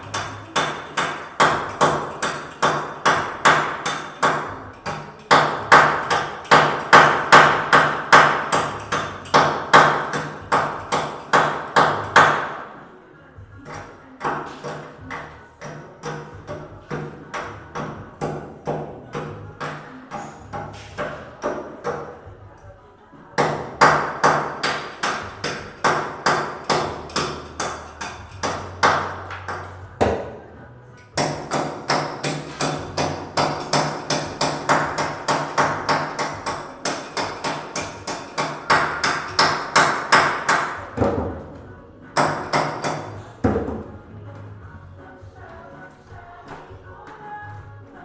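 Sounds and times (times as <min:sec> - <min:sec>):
hammer striking: 0:00.0 - 0:12.7, 0:23.4 - 0:30.4, 0:31.2 - 0:41.4, 0:42.2 - 0:43.9.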